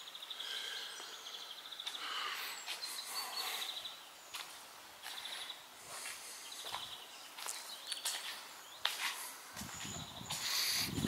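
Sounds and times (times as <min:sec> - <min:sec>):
small birds chirping and trilling: 0:00.0 - 0:11.0
soft footsteps: 0:04.3 - 0:10.7.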